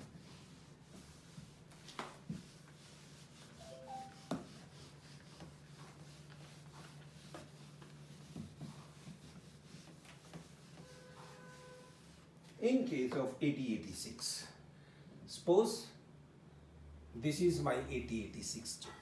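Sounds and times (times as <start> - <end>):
duster rubbing on whiteboard: 0.0 - 12.4.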